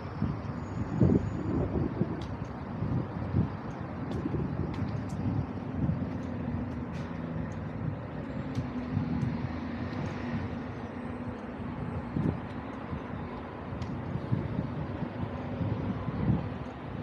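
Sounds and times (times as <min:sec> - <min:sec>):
road noise hiss: 0:00.0 - 0:17.0
vehicle engine hum: 0:00.0 - 0:17.0
light ticks: 0:02.1 - 0:02.6, 0:03.6 - 0:07.8, 0:08.4 - 0:11.5, 0:12.1 - 0:14.1.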